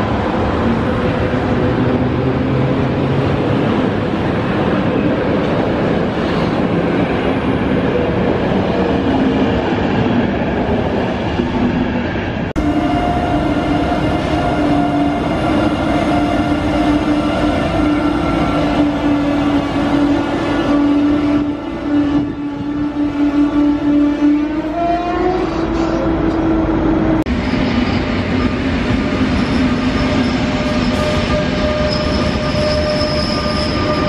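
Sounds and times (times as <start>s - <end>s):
electric locomotive hum: 0.0s - 34.0s
train wheels on rails: 25.1s - 34.0s.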